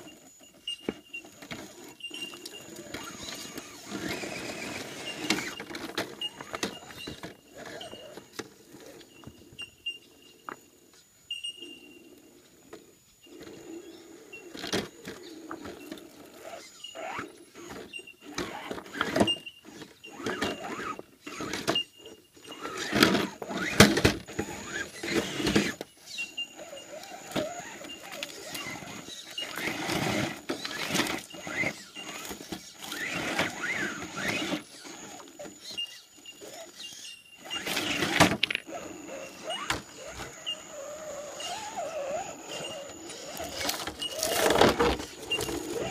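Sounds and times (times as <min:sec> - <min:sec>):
rc car motor and gears whining: 0:00.0 - 0:45.9
plastic knocking and scraping on rock: 0:42.8 - 0:45.9.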